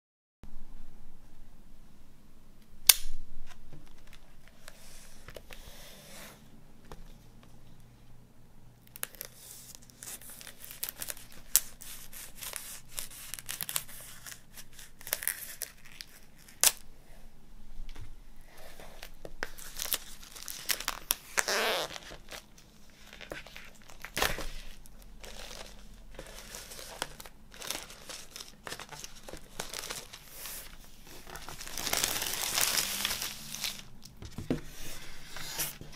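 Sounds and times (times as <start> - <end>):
plastic wrap tearing and crinkling: 8.9 - 16.8, 19.0 - 35.9
knife slitting plastic wrap: 26.4 - 33.8.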